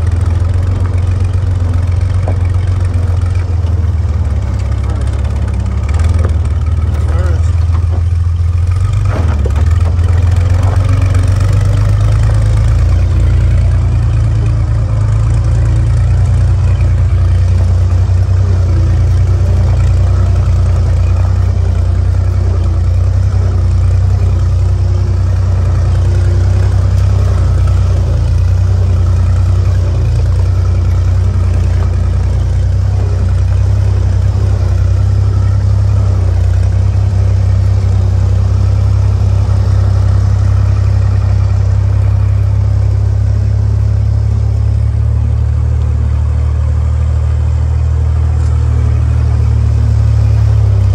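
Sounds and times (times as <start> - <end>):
jeep engine running: 0.0 - 50.9.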